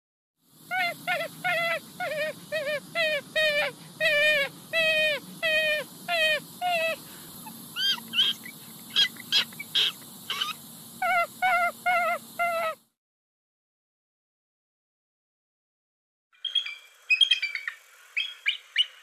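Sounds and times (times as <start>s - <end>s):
raccoon calling: 0.7s - 12.8s.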